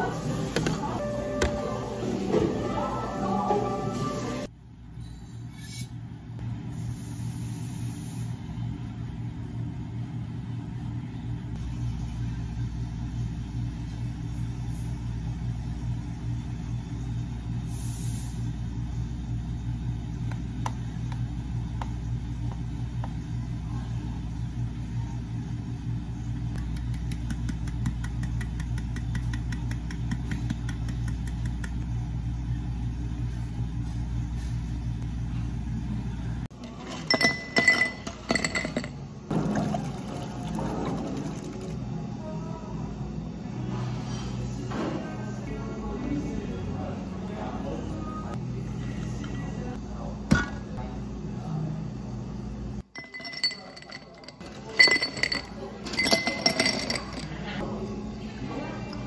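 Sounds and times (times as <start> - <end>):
drink machine motor humming: 0.0 - 4.5, 36.2 - 42.0, 52.8 - 59.0.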